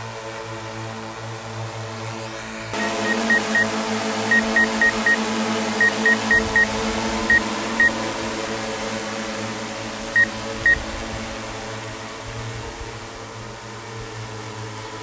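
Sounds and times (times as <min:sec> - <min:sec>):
drone rotors humming: 0:00.1 - 0:15.0
high electronic beeps: 0:02.8 - 0:03.7, 0:04.3 - 0:05.2, 0:05.8 - 0:06.7.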